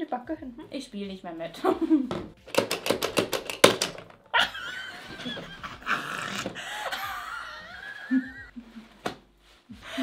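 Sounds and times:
plastic hand hitting face: 0:02.2 - 0:04.2
high-pitched laughter and squealing: 0:04.3 - 0:09.0.

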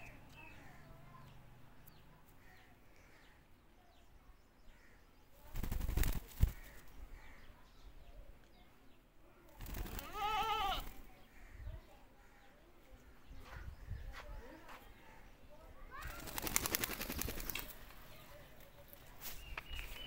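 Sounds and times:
bleat-like animal call: 0:10.0 - 0:10.9
faint bird chirps: 0:13.3 - 0:20.0.

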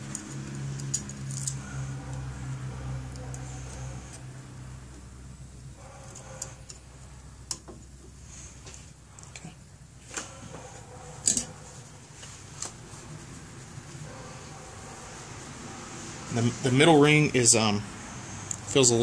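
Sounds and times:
metallic clicks of ring pliers: 0:00.0 - 0:01.7.

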